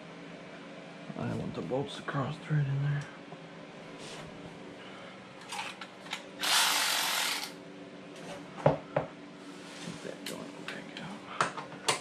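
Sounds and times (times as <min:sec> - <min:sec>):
cordless drill running bolt: 0:06.4 - 0:07.6.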